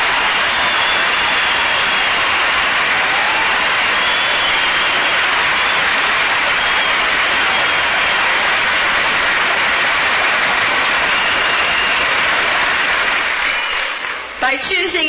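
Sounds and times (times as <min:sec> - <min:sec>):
crowd cheering and applauding: 0:00.0 - 0:14.8.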